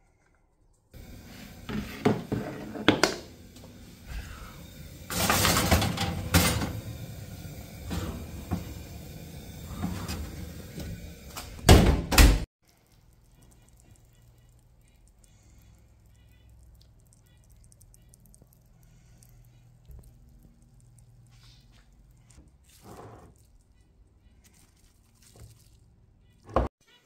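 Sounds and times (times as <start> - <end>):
oven door opening: 1.0 - 12.5
metal baking tray clattering: 5.0 - 7.2.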